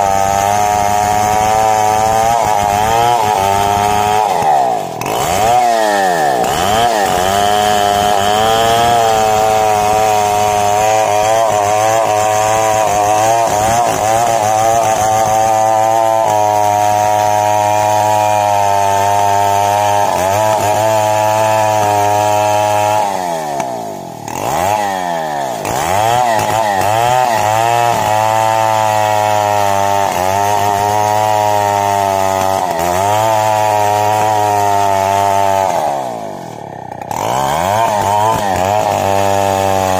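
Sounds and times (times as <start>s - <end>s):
chainsaw cutting tree trunk: 0.0s - 39.9s.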